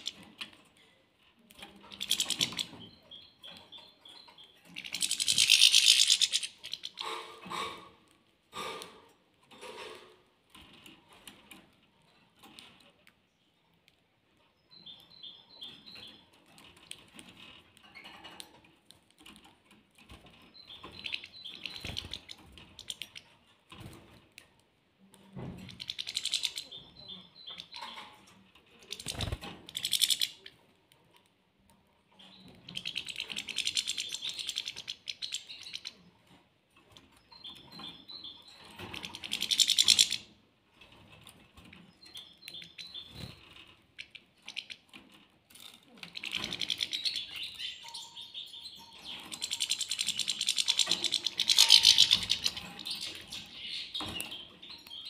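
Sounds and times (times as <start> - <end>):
goldfinches chirping: 20.5 - 23.2, 46.2 - 55.0.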